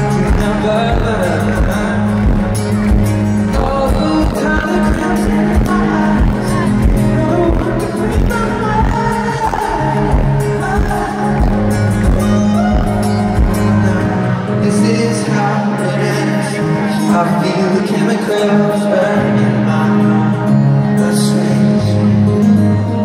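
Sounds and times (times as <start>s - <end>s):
bass notes: 0.0s - 15.2s
acoustic guitar: 0.0s - 23.0s
man singing: 0.0s - 23.0s.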